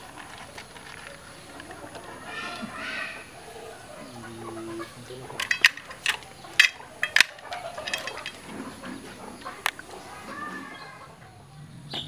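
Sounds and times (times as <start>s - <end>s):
chickens clucking: 0.0s - 12.0s
low steady chicken call: 1.3s - 5.4s.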